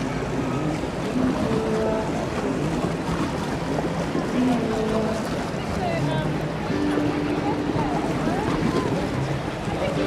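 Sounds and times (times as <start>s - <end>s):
wind buffeting microphone: 0.0s - 10.0s
faint distant voices: 4.2s - 10.0s.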